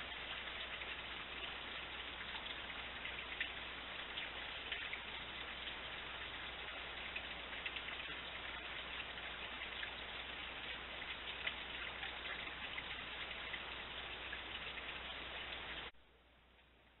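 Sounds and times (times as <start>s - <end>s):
fountain water splashing: 0.0s - 15.9s.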